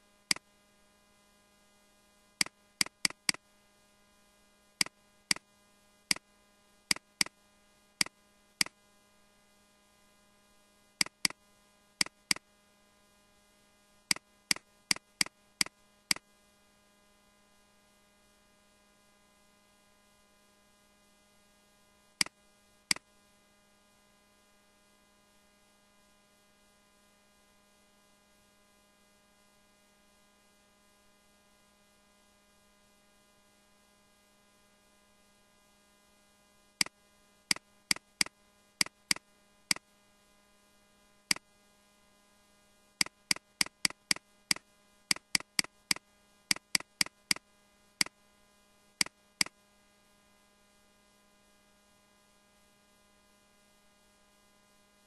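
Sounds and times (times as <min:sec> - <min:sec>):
electrical mains hum: 0:00.0 - 0:55.0
computer mouse clicks: 0:02.4 - 0:03.4, 0:04.8 - 0:05.4, 0:06.9 - 0:07.4, 0:11.0 - 0:11.4, 0:12.0 - 0:12.4, 0:14.1 - 0:16.2, 0:22.2 - 0:23.0, 0:36.8 - 0:39.8, 0:43.0 - 0:47.4.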